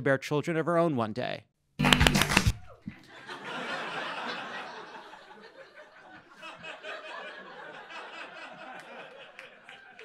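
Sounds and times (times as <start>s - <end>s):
audience laughing: 3.0s - 10.0s.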